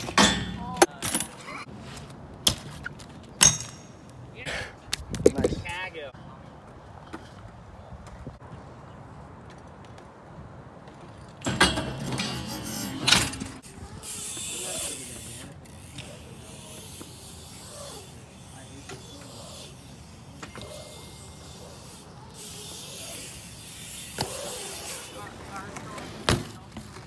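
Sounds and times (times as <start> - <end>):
bike landing on concrete: 0.0 - 1.4, 2.4 - 4.0, 23.7 - 27.0
bike rattling: 10.8 - 27.0
tyres hissing on concrete: 13.9 - 26.3.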